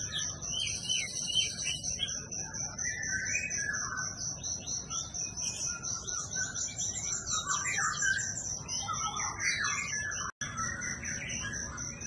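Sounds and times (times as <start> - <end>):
songbirds chirping and singing: 0.0 - 12.0.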